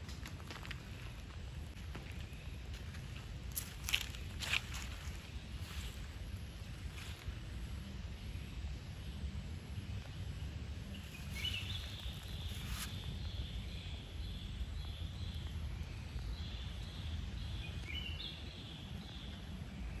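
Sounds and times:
steady low rumble: 0:00.0 - 0:20.0
birds chirping: 0:10.8 - 0:20.0.

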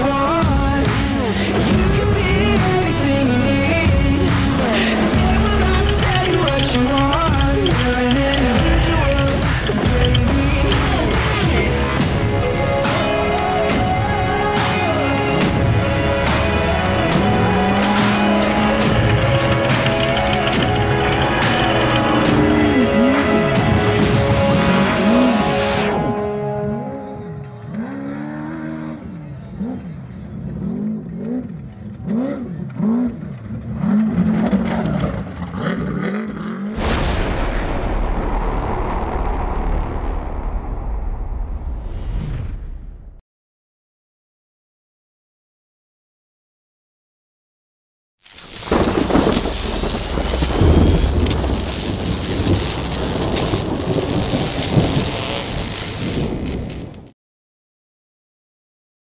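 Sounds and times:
race car engine revving: 0:00.0 - 0:12.4, 0:14.6 - 0:25.5, 0:27.6 - 0:36.8
crackling electric noise: 0:16.4 - 0:25.7, 0:48.2 - 0:57.1
loud whooshing burst: 0:36.8 - 0:43.1, 0:48.3 - 0:57.1
deep thunder rumble: 0:48.4 - 0:57.1.

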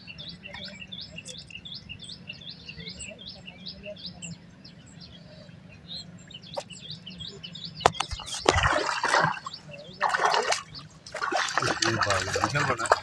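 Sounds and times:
small birds chirping: 0:00.0 - 0:13.0
fish splashing at water surface: 0:08.0 - 0:13.0.

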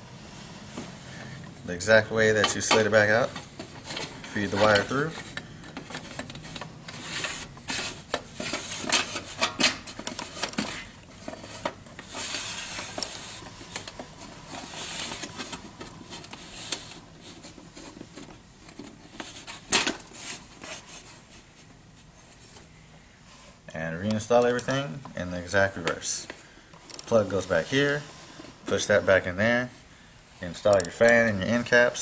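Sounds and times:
sheet metal sliding and scraping: 0:02.4 - 0:18.0.

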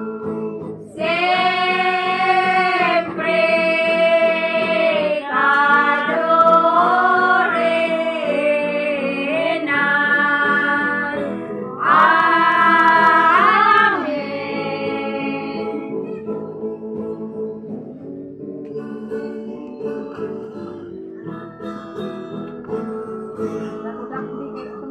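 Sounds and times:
acoustic guitar: 0:00.0 - 0:24.9
women singing together: 0:00.9 - 0:16.4.

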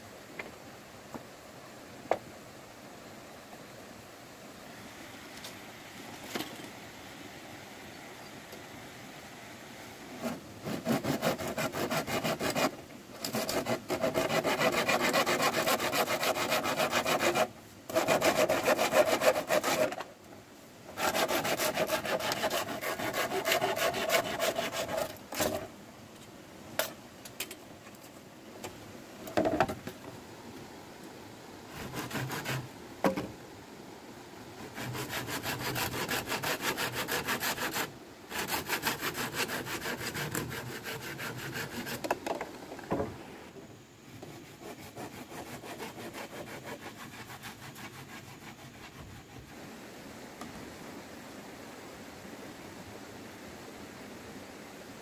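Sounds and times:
hand saw cutting bamboo: 0:10.2 - 0:20.1, 0:21.0 - 0:25.7, 0:31.7 - 0:32.6, 0:34.7 - 0:42.1, 0:44.2 - 0:49.4.

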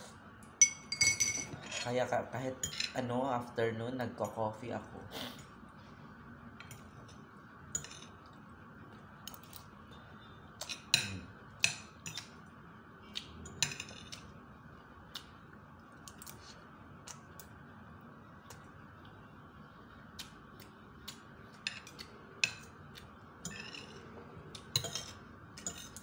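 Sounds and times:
cutlery clinking on a plate: 0:23.4 - 0:24.0, 0:24.6 - 0:26.0.

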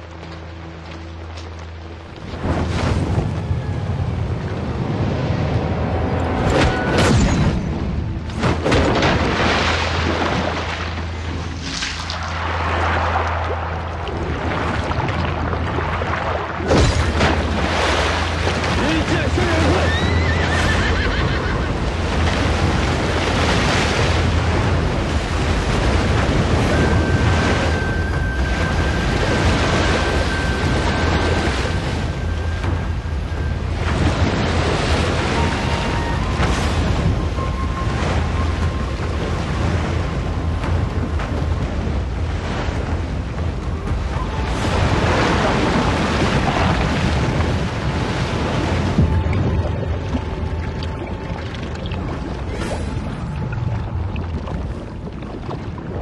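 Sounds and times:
background music: 0:00.0 - 0:55.4
deep rumble: 0:00.0 - 0:56.0
wind and rain rushing: 0:00.0 - 0:56.0
roar of swirling water: 0:44.4 - 0:56.0.

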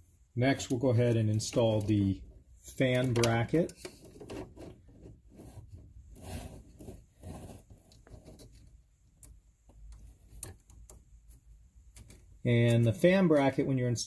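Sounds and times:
light scraping of small parts: 0:00.6 - 0:08.8.

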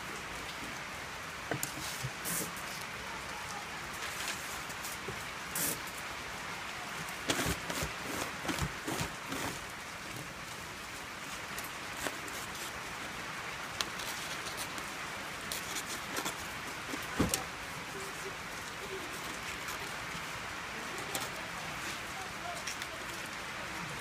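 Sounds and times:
steady hiss: 0:00.0 - 0:24.0
plastic film crinkling: 0:07.2 - 0:09.7, 0:11.6 - 0:12.9, 0:13.7 - 0:17.5.

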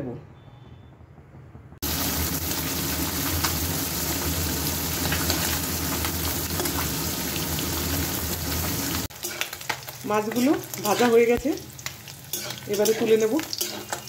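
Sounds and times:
fish sizzling in hot oil: 0:01.8 - 0:14.0.

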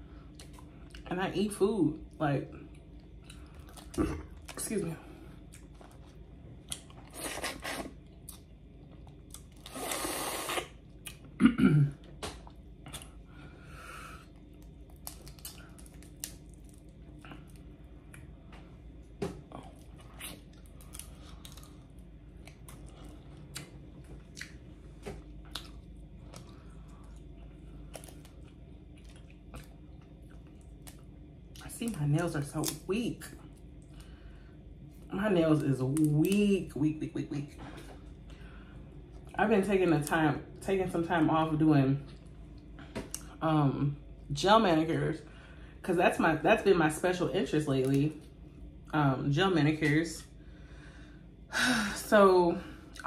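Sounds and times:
chewing: 0:02.6 - 0:04.6, 0:05.4 - 0:11.3, 0:12.2 - 0:13.2, 0:14.2 - 0:18.3, 0:19.4 - 0:31.6
crawfish shells cracking: 0:14.6 - 0:17.6.

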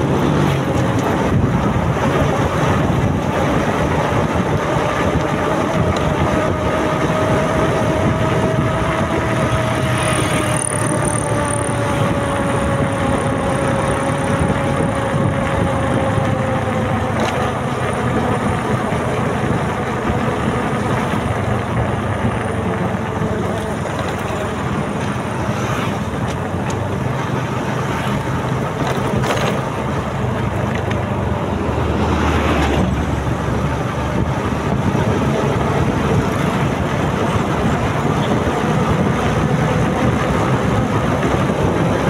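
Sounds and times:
motorcycle engine cruising: 0:00.0 - 0:42.0
wind and road noise: 0:00.0 - 0:42.0.

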